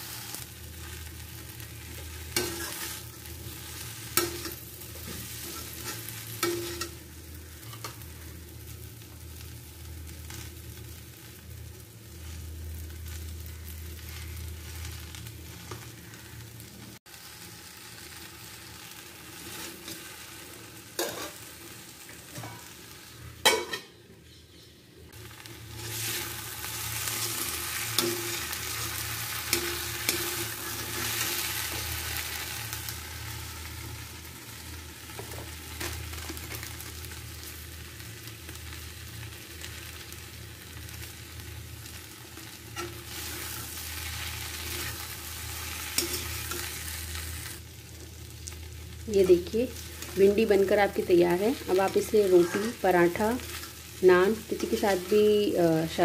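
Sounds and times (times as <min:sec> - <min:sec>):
okra sizzling in a pan: 0:00.0 - 0:56.0
steel spatula scraping a pan: 0:02.3 - 0:03.2, 0:04.2 - 0:07.0.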